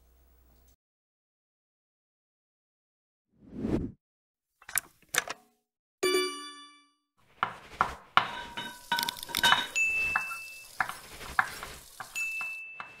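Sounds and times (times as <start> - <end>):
dishes and cutlery clinking: 7.8 - 13.0.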